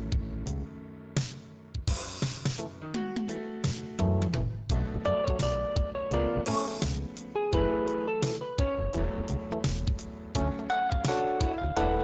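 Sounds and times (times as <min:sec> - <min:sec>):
held chords: 0:02.8 - 0:12.0.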